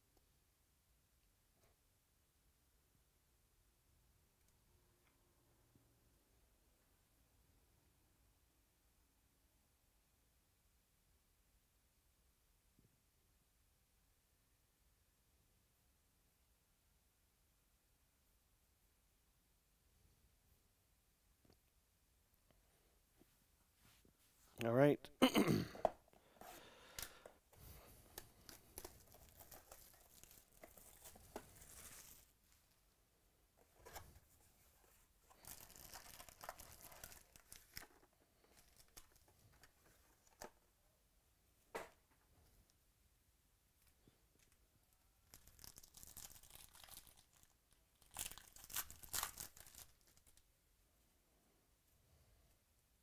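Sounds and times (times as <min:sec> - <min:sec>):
cellophane crinkling and tearing: 0:28.2 - 0:32.3, 0:35.3 - 0:40.5, 0:45.2 - 0:50.4.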